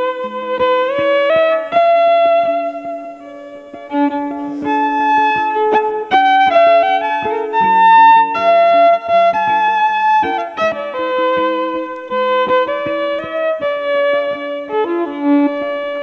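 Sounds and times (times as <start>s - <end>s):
bowed violin melody: 0.0s - 16.0s
plucked violin notes: 0.0s - 16.0s.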